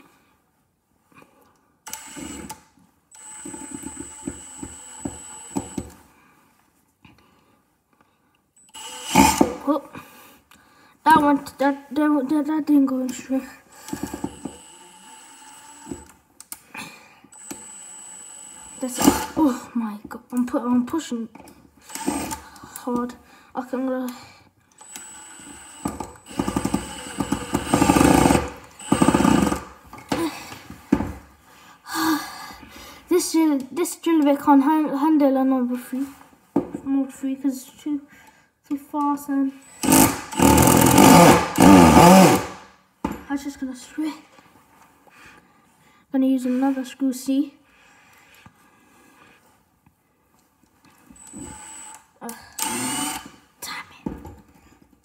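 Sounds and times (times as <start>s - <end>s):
impact driver whining and hammering: 1.9s - 6.0s, 8.6s - 9.6s, 13.7s - 16.1s, 17.3s - 19.4s, 24.8s - 30.3s, 39.7s - 43.2s, 51.1s - 52.0s, 52.6s - 53.4s
person talking: 11.0s - 13.6s, 18.8s - 21.4s, 22.7s - 24.2s, 33.1s - 36.1s, 38.7s - 39.6s, 43.2s - 44.3s, 46.1s - 47.6s.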